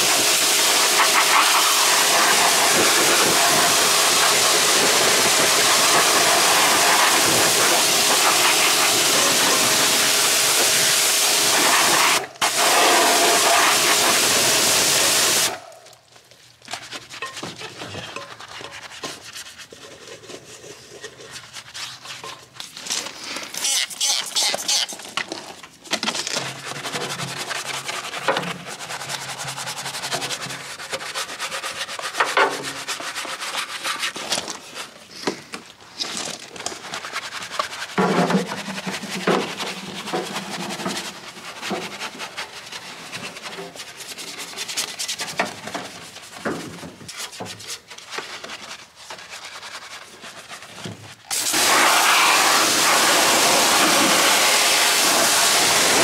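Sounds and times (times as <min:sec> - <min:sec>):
hand scrubbing and brushing car: 0:00.0 - 0:15.6, 0:16.6 - 0:22.7, 0:26.6 - 0:35.0, 0:36.8 - 0:56.0
pressure washer spraying: 0:00.0 - 0:15.7, 0:51.3 - 0:56.0.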